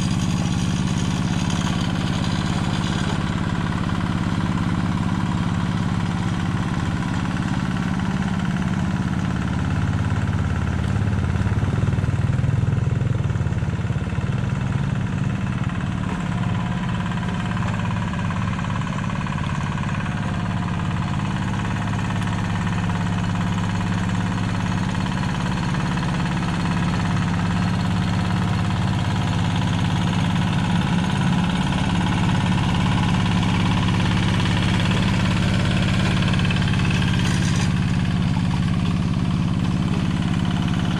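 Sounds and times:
diesel engine running: 0.0 - 40.9.

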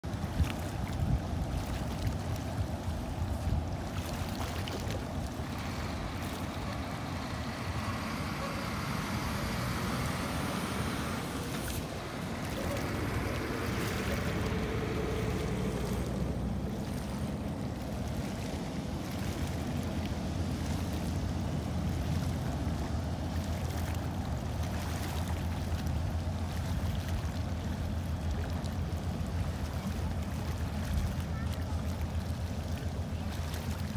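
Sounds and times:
ferry engines rumbling: 5.0 - 24.6
rushing hiss of water: 5.4 - 17.3.

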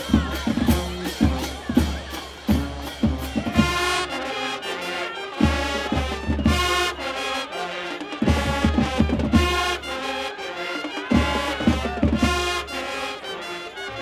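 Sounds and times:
brass band long held chords: 0.0 - 14.0.

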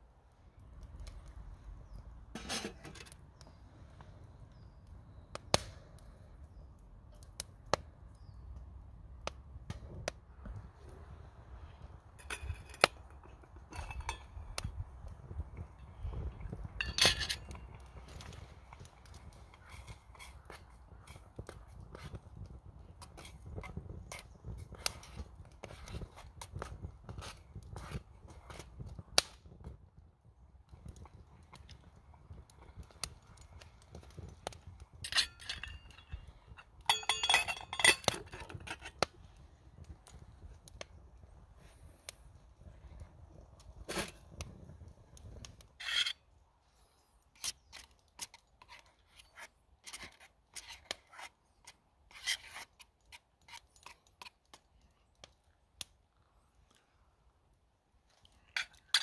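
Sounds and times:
twig fire crackling: 0.0 - 59.0
metal clinking against pot: 12.2 - 14.4, 16.8 - 17.7, 36.8 - 38.9
metal lid clinking on pot: 36.9 - 38.8.

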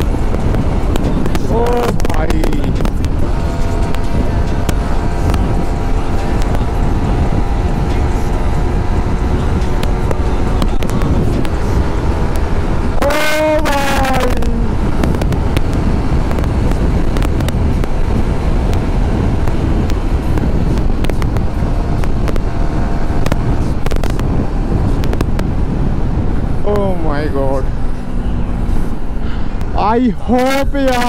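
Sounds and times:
heavy wind noise on microphone: 0.0 - 31.0
motorcycle engine drone: 0.0 - 31.0
horn passing: 12.9 - 14.8.

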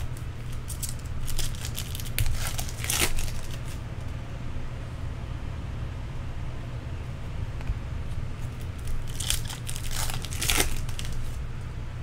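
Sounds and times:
foil wrapper crinkling: 0.0 - 3.8, 8.5 - 11.4
low room hum: 0.0 - 12.0.

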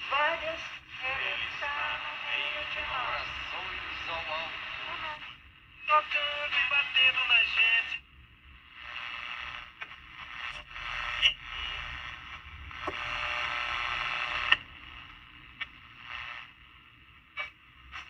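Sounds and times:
broadcast voice: 0.0 - 8.0
radio static hiss: 0.0 - 18.0.

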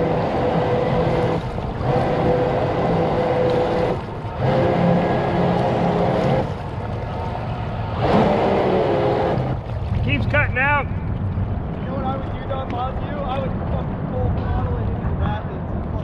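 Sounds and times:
jet kayak motor humming: 0.0 - 12.2
water noise: 0.0 - 15.2.

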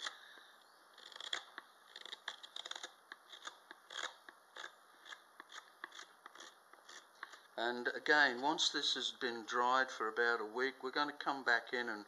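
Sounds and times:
knife cutting wood strokes: 1.0 - 7.5.

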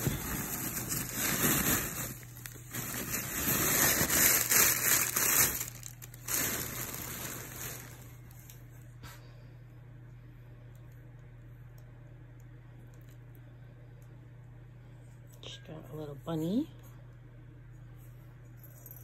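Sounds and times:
straw packing rustling: 0.0 - 8.3.

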